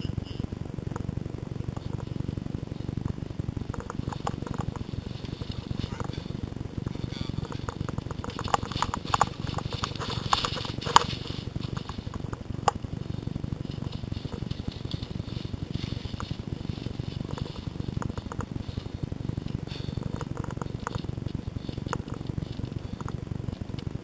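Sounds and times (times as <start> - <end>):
low microphone rumble: 0.0 - 24.0
twigs snapping: 3.7 - 6.4, 7.3 - 23.9
footsteps crunching dry leaves: 7.0 - 23.0.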